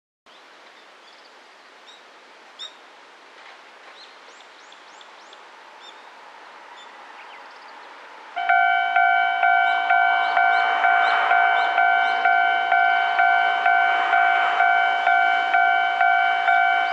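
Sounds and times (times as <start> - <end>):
bird chirps: 8.4 - 13.0
level crossing warning bell: 8.4 - 16.9.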